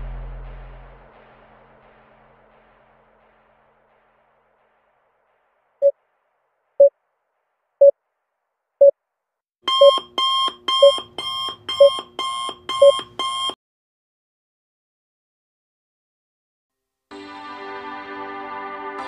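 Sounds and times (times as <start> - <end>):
ringing alarm: 9.7 - 13.6
short timer beeps: 9.7 - 13.6.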